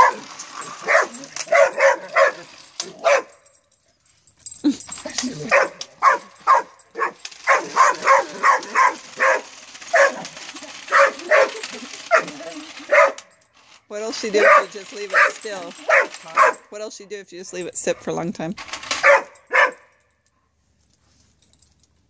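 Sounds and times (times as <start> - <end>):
dog barking: 0.0 - 3.4, 5.5 - 10.3, 10.9 - 13.2, 14.4 - 16.7, 19.0 - 19.9.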